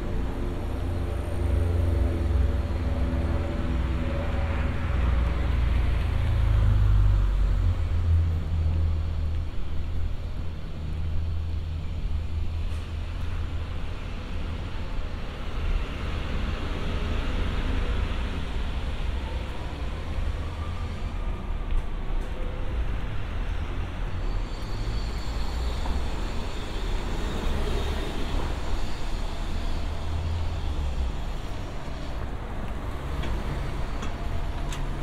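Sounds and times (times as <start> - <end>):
low traffic rumble: 0.0 - 35.0
cars passing: 13.5 - 35.0.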